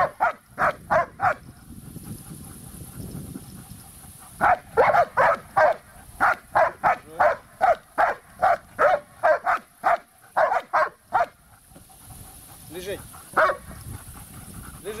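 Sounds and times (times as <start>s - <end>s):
large dog barking: 0.0s - 1.4s, 4.4s - 11.4s, 13.3s - 13.8s.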